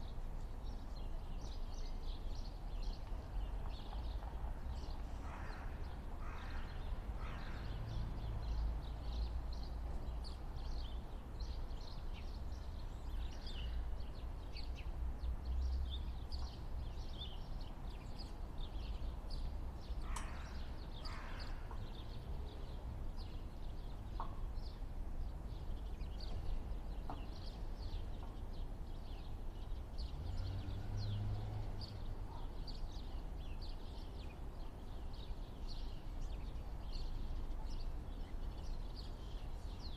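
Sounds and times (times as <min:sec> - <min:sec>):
small birds chirping: 0:08.2 - 0:39.9.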